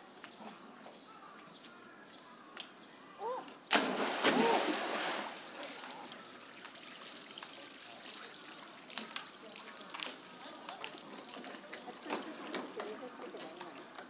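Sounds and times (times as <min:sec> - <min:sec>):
loud splash: 0:03.7 - 0:05.4
water sloshing and trickling: 0:03.7 - 0:14.0.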